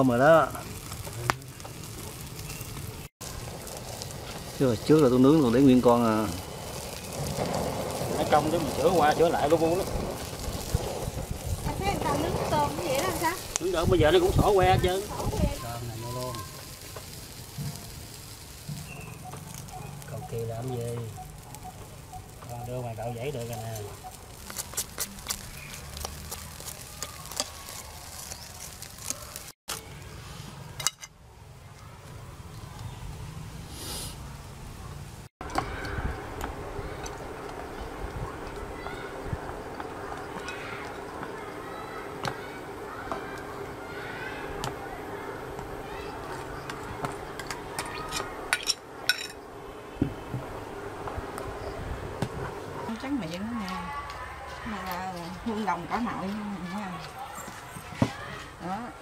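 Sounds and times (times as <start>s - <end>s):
fish sizzling on a grill: 0.0s - 59.0s
sharp pops from fish and coals: 0.5s - 5.2s, 23.4s - 30.0s
steady low hum: 35.4s - 54.5s.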